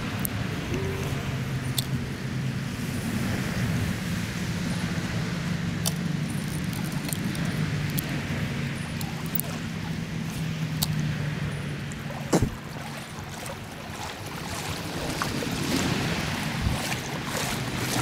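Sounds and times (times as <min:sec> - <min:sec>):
wind buffeting microphone: 0:00.0 - 0:18.0
stream rushing over rocks: 0:04.9 - 0:18.0.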